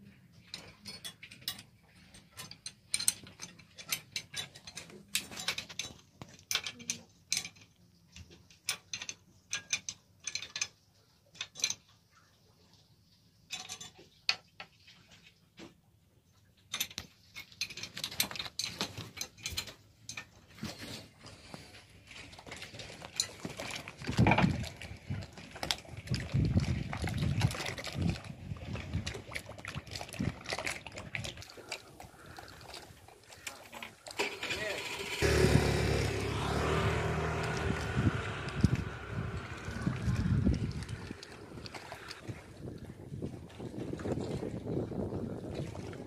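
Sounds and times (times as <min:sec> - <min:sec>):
low thumps: 0:35.2 - 0:41.8.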